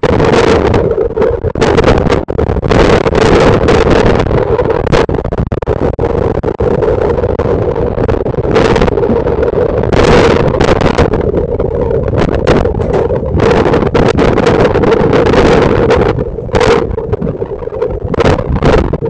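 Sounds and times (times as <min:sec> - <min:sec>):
wind buffeting microphone: 0:00.0 - 0:19.0
wind and water rushing: 0:06.0 - 0:19.0
steady drone: 0:06.6 - 0:19.0.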